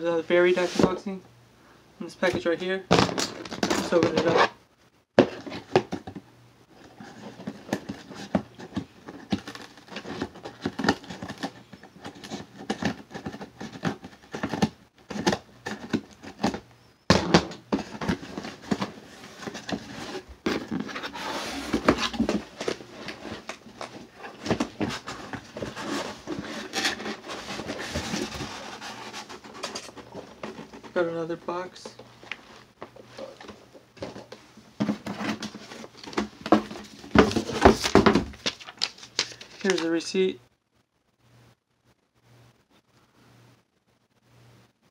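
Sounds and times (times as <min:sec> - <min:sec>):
packaging rustling and crinkling: 0:05.2 - 0:16.7, 0:17.6 - 0:40.1
cardboard box handled: 0:17.7 - 0:31.0, 0:32.3 - 0:39.8.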